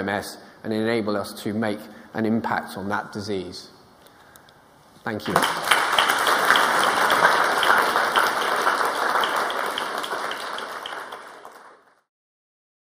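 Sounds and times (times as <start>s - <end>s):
audience applauding: 5.2s - 12.1s.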